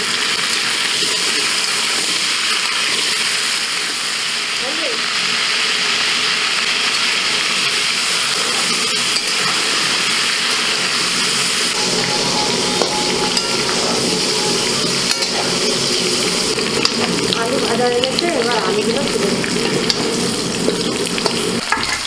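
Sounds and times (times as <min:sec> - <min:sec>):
potatoes sizzling in oil: 0:00.0 - 0:22.0
metal spatula scraping a wok: 0:08.0 - 0:21.6.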